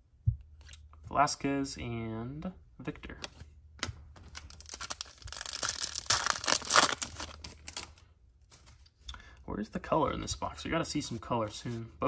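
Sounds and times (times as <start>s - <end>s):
wrapper tearing and crinkling: 4.3s - 8.0s.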